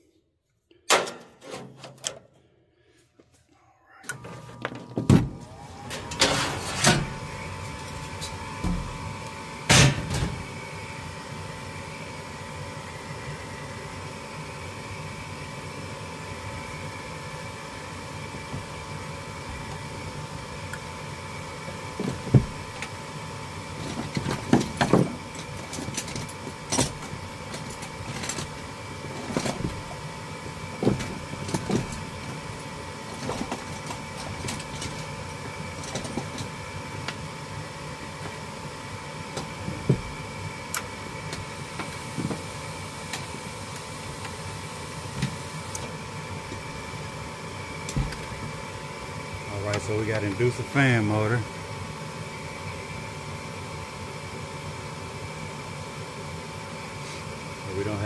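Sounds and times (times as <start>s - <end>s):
fan motor whine: 0.9s - 58.0s.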